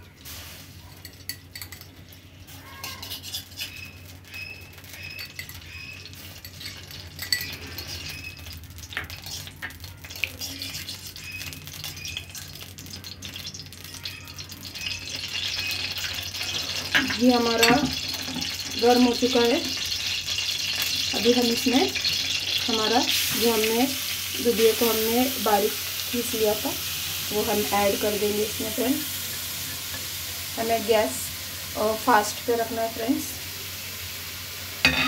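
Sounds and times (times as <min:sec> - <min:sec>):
spoon clinking against pan: 0:01.0 - 0:02.0, 0:02.8 - 0:08.4, 0:16.9 - 0:19.1
metal spoon scraping a pan: 0:01.0 - 0:13.5, 0:14.8 - 0:25.6.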